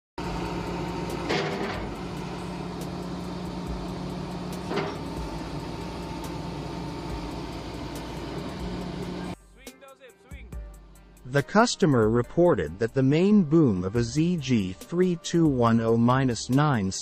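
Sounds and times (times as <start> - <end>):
excavator diesel engine humming: 0.2 - 9.4.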